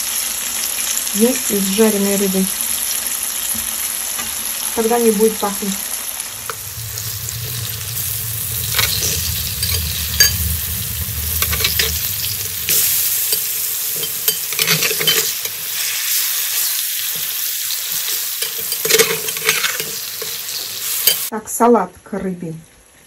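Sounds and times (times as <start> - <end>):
food sizzling in hot oil: 0.0 - 21.3
metal spatula clicking and scraping: 8.6 - 15.7, 17.9 - 21.3.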